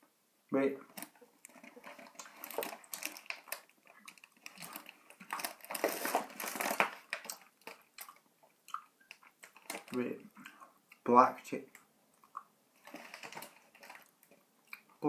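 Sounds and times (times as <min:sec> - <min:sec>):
plastic packet crinkling: 0:00.9 - 0:08.2, 0:09.0 - 0:10.1, 0:12.8 - 0:14.9.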